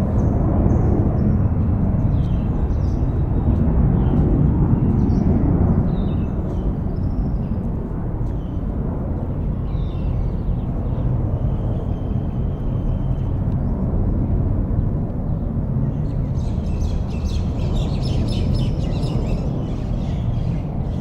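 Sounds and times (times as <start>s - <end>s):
small birds chirping: 0.0s - 8.7s, 15.3s - 21.0s.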